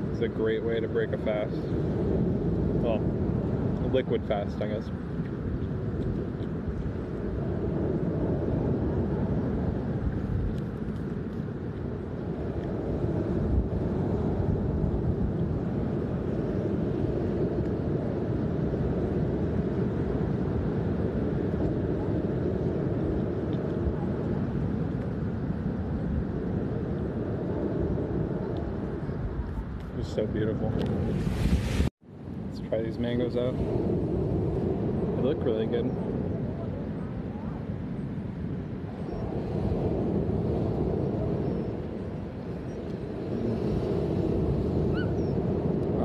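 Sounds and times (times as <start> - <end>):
wind blowing across microphone: 0.0 - 46.0
surf breaking on beach: 30.9 - 31.9.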